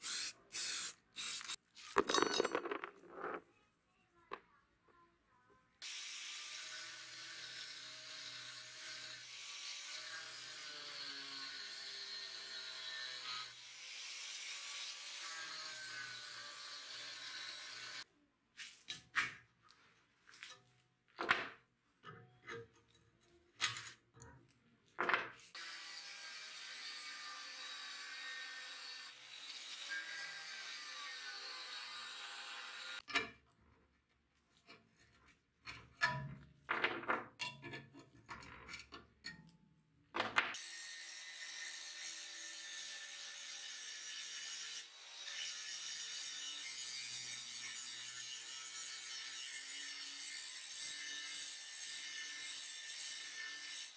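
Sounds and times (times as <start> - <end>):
angle grinder cutting steel: 0.0 - 1.6, 5.8 - 18.1, 25.5 - 33.1, 40.6 - 53.9
metallic knocks and clinks: 2.0 - 3.4.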